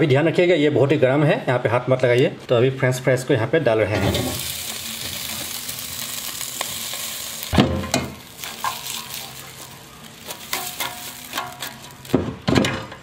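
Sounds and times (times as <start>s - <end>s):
clattering of fries and basket: 6.7s - 13.0s
air fryer basket knocking: 7.5s - 8.2s, 10.8s - 13.0s.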